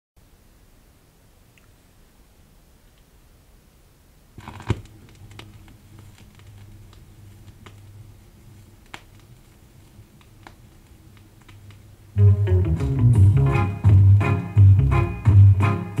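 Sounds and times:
low steady hum: 0.2s - 15.7s
vinyl crackles and pops: 4.3s - 16.0s
stylus dropping onto vinyl record: 4.4s - 16.0s.

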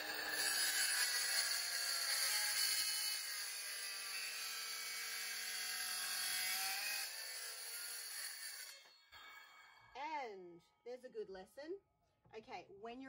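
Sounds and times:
circular saw cutting wood: 0.0s - 9.0s.

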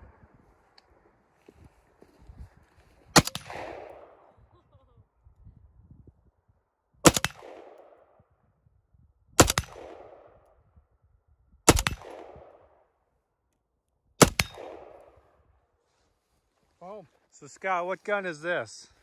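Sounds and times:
rifle shots with echo: 3.2s - 4.3s, 7.0s - 8.2s, 9.4s - 10.5s, 11.7s - 12.9s, 14.2s - 15.4s.

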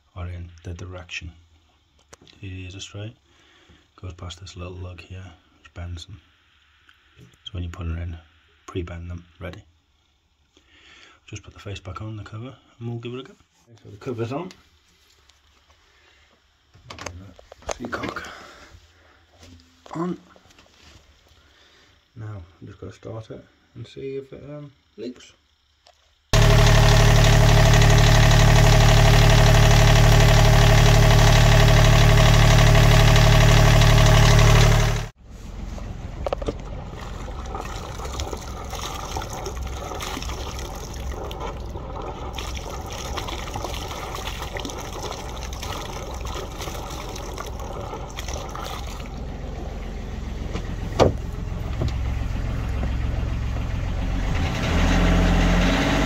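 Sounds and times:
cooling water splashing from exhaust: 26.4s - 35.1s, 36.6s - 49.5s
marine diesel engine running: 26.4s - 54.6s.

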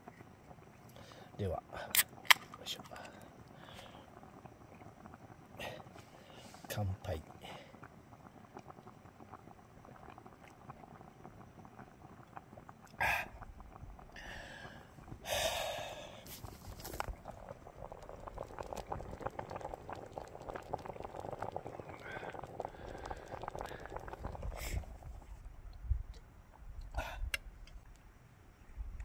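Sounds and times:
curry simmering in a pot: 2.9s - 25.5s
breathy exhale: 3.1s - 4.1s, 5.6s - 6.7s, 13.0s - 13.4s, 14.2s - 16.4s, 26.9s - 27.4s.

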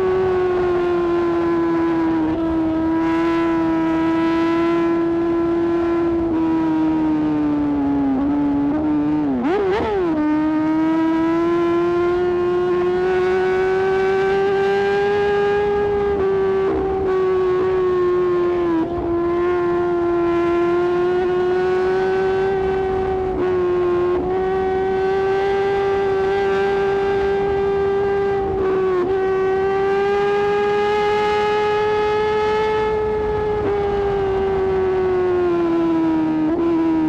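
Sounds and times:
motorcycle engine whining: 0.0s - 37.0s.

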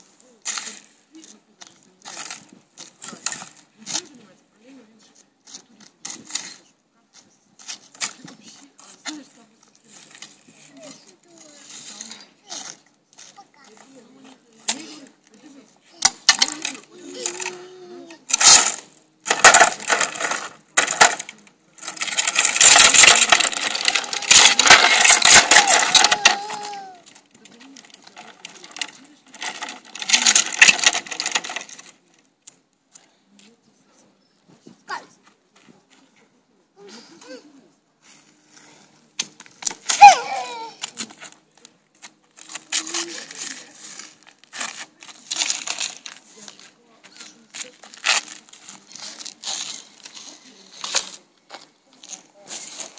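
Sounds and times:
toy truck scraping on paving: 0.0s - 4.3s, 7.6s - 32.1s, 38.0s - 52.9s
toddler squealing: 40.0s - 40.8s.

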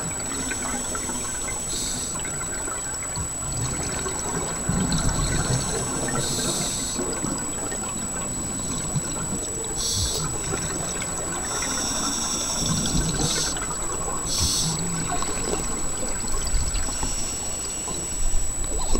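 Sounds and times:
bubbling water rumble: 0.0s - 18.9s
thin high whine: 0.0s - 18.9s
diver breathing through regulator: 14.3s - 15.6s.

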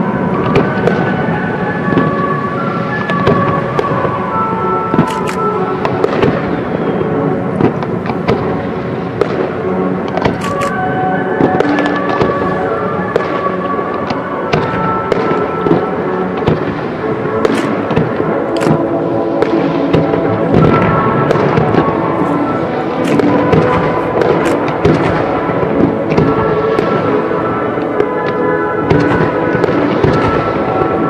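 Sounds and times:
fireworks bangs and crackles: 0.0s - 31.0s
music playing: 0.0s - 31.0s.

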